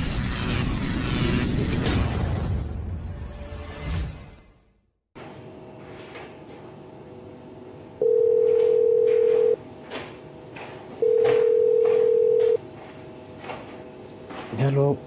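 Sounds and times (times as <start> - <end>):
phone ringing beeps: 8.0 - 9.6, 11.0 - 12.6.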